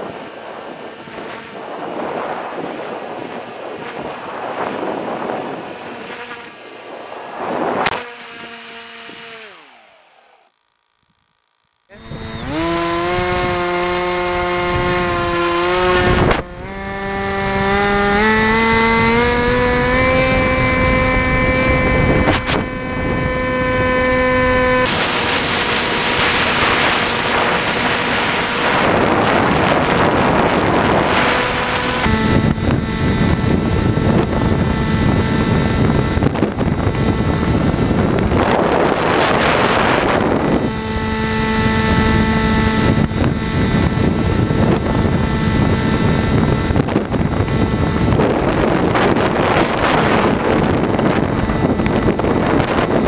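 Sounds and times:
wind rushing over microphone: 0:00.0 - 0:09.6, 0:11.9 - 0:53.0
electric motor and propeller whining: 0:00.0 - 0:53.0.

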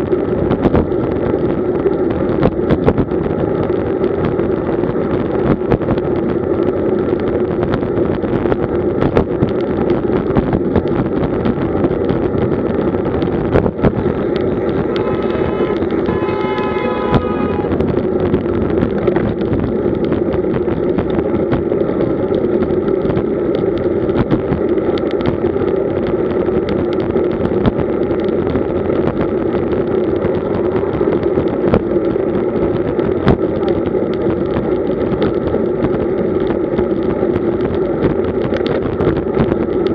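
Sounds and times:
bike tyre road noise: 0:00.0 - 0:39.9
wind rush on microphone: 0:00.0 - 0:39.9
brief pitched tone: 0:14.0 - 0:17.9.

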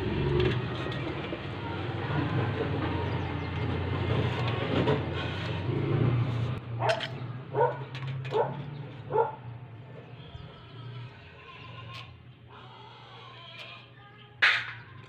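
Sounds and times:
dog barking: 0:06.8 - 0:09.4.

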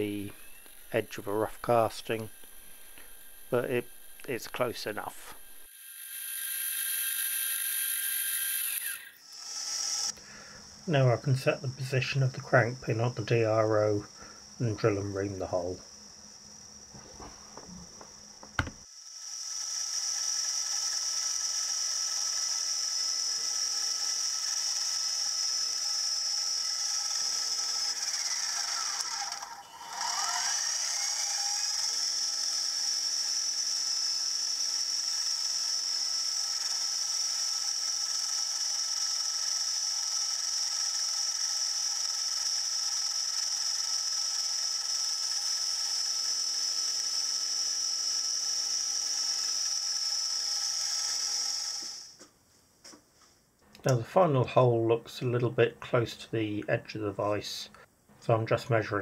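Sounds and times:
milling machine spindle whine: 0:00.0 - 0:10.2, 0:19.4 - 0:52.0
spindle switch click: 0:18.4 - 0:18.8.

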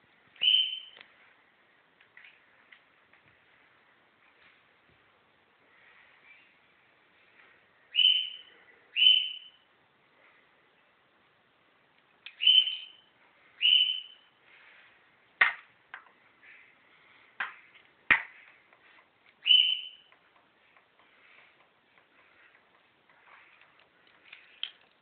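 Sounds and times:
bird calling high notes: 0:00.4 - 0:01.0, 0:07.9 - 0:09.6, 0:12.4 - 0:14.3, 0:19.4 - 0:20.1.

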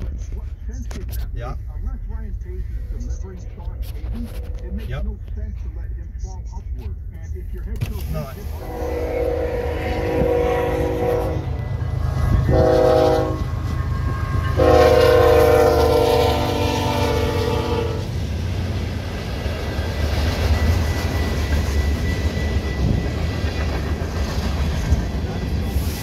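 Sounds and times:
freight train rumbling: 0:00.0 - 0:26.0
locomotive air horn blasts: 0:08.5 - 0:18.1.

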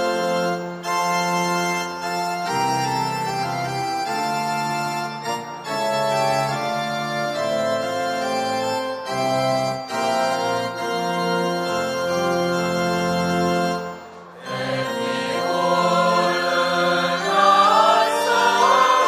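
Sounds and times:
mixed choir singing: 0:14.3 - 0:19.0.

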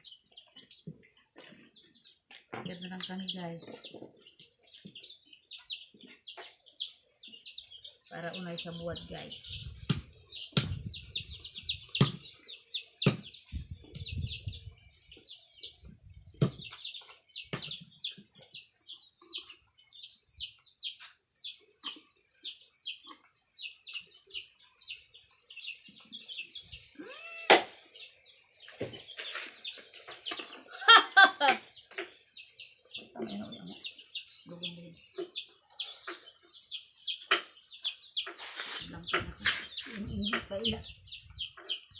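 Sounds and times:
small birds chirping: 0:00.0 - 0:41.9
chicken calling: 0:30.7 - 0:31.7.

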